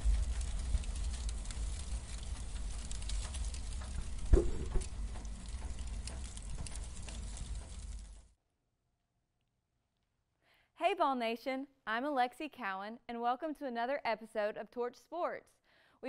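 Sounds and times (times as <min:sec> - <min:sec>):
low rumble: 0:00.0 - 0:08.2
fire crackling: 0:00.0 - 0:08.4
sudden hit: 0:04.3 - 0:04.8.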